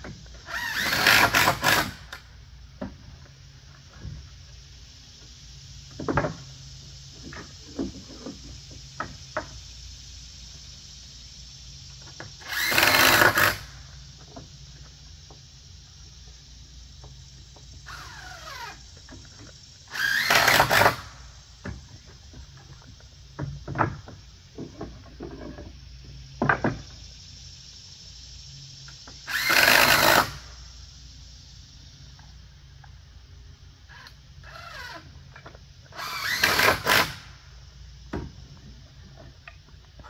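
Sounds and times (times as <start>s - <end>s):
power drill driving screws into wood: 0.4s - 2.2s, 12.4s - 13.7s, 17.9s - 18.8s, 19.9s - 21.2s, 29.2s - 30.5s, 33.9s - 35.0s, 35.9s - 37.4s
knocks and clicks of handling wood: 5.9s - 6.5s, 7.1s - 9.6s, 21.6s - 25.8s, 26.4s - 27.0s, 38.1s - 40.0s.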